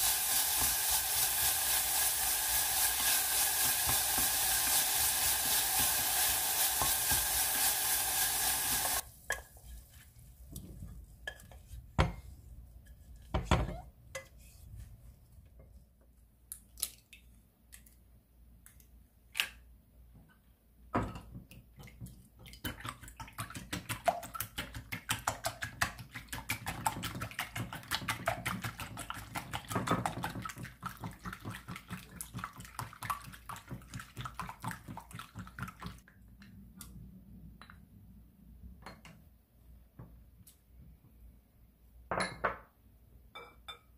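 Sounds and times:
whisk beating eggs in a bowl: 0.0 - 9.0, 22.6 - 36.0
food sizzling in a saucepan: 0.0 - 10.1.

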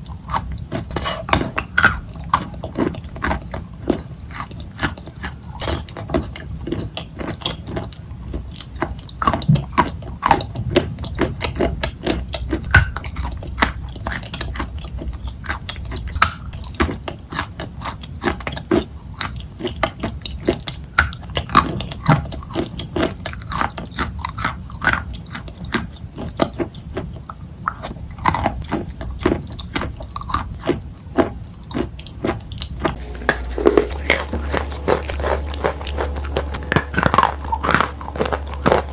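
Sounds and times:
chewing wet paste: 0.0 - 38.9.

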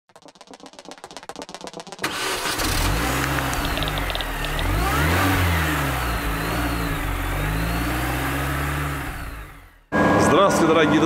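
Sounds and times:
car engine revving: 2.0 - 10.2.

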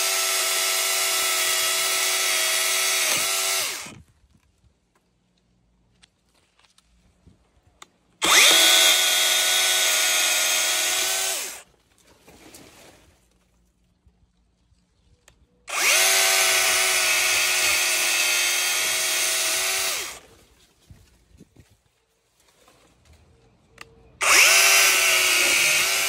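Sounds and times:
electric chainsaw motor whining: 0.0 - 4.0, 8.2 - 11.6, 15.7 - 20.2, 24.2 - 26.0.

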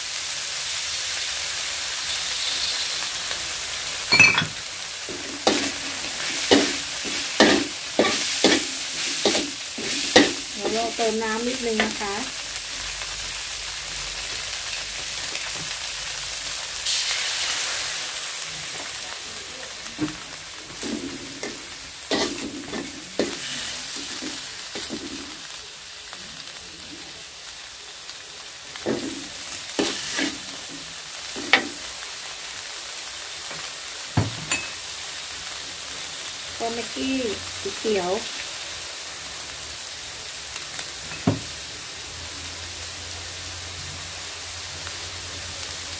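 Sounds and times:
food sizzling in a wok: 0.0 - 45.9
metal spatula scraping wok: 4.1 - 12.2, 20.6 - 25.4, 28.9 - 30.7.

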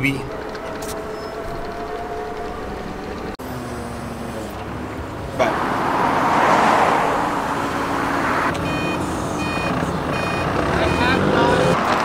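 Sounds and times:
forklift engine running: 0.0 - 12.0
reversing alarm beeping: 8.6 - 11.8.

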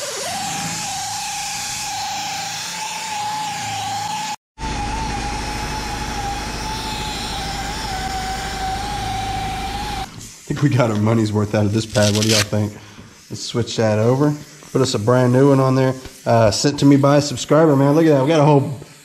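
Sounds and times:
electric polisher whining: 0.0 - 10.1.

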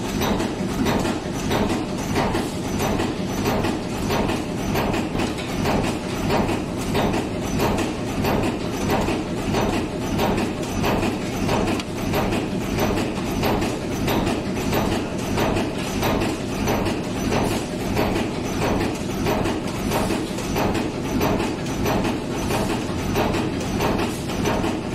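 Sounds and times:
forging machine clatter: 0.0 - 24.9.

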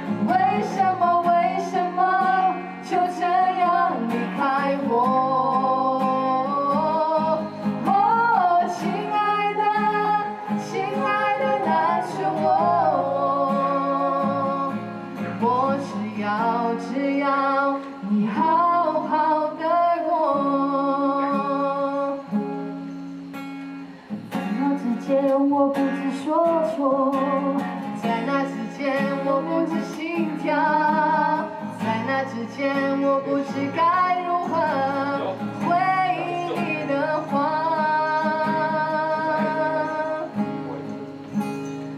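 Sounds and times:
woman singing: 0.0 - 22.4, 24.4 - 40.4
acoustic guitar: 0.0 - 41.9.

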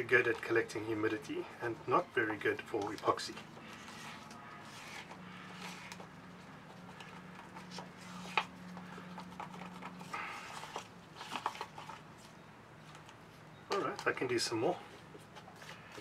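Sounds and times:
stick scraping plastic cup: 2.7 - 12.3.

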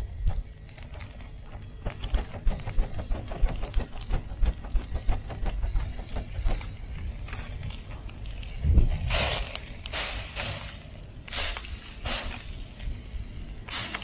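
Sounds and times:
low rumble: 5.0 - 10.3.

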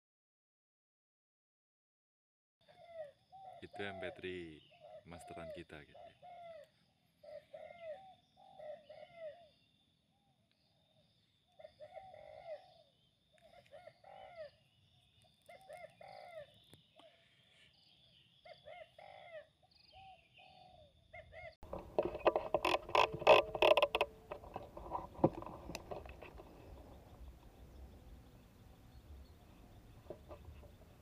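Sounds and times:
dove cooing: 2.6 - 9.5, 11.6 - 14.6, 15.5 - 16.6, 18.4 - 31.0.

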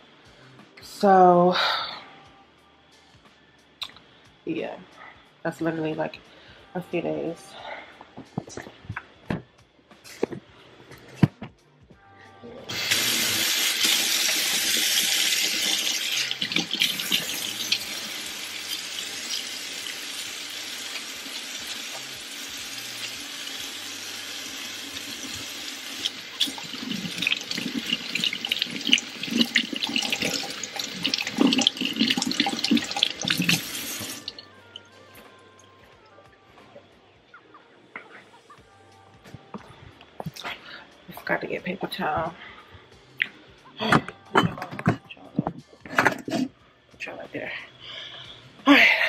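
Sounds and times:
faucet water splashing in steel sink: 12.7 - 34.4.

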